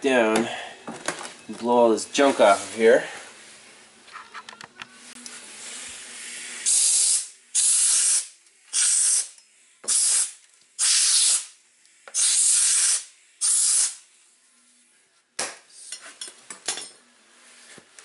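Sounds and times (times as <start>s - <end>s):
air blow gun hissing: 5.4s - 14.0s
short loud air blasts: 5.5s - 9.3s, 9.9s - 11.6s, 12.2s - 14.0s.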